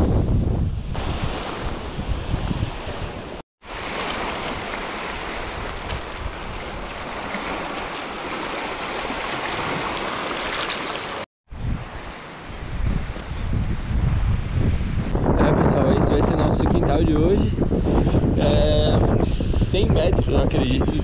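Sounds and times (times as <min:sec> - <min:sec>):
small waves splashing on rocks: 0:03.7 - 0:11.2.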